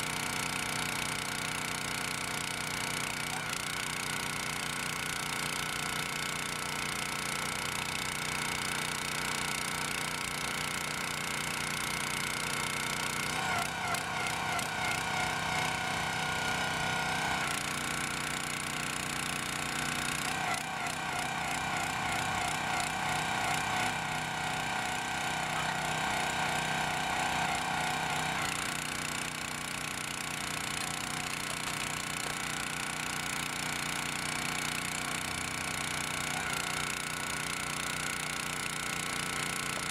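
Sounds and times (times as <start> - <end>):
petrol engine running: 11.6 - 37.3
hydraulic ram whine: 11.7 - 37.6.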